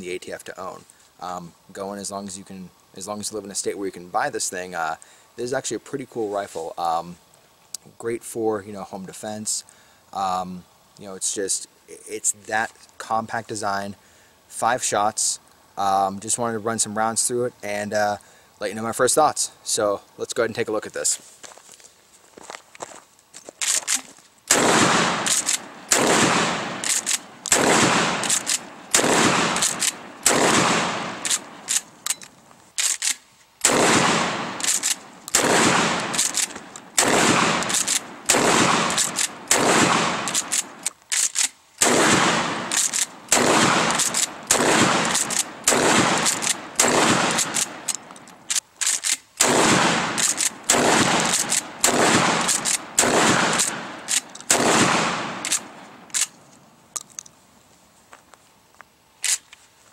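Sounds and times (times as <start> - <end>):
shotgun shots echoing: 24.5 - 31.8, 33.6 - 40.8, 41.8 - 47.9, 49.4 - 55.8
shotgun pump racking clacks: 25.2 - 25.7, 26.8 - 27.6, 28.2 - 28.7, 29.6 - 30.0, 31.2 - 33.2, 34.6 - 35.4, 36.1 - 36.9, 37.6 - 38.1, 38.9 - 39.4, 40.2 - 41.5, 42.7 - 43.1, 43.9 - 45.5, 46.2 - 46.6, 47.3 - 49.2, 50.2 - 50.6, 51.2 - 51.7, 52.4 - 52.8, 53.5 - 54.5, 55.4 - 56.3.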